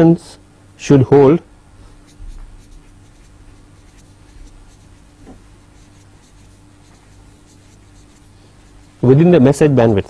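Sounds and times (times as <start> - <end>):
faint scratching of writing: 1.9 - 9.2.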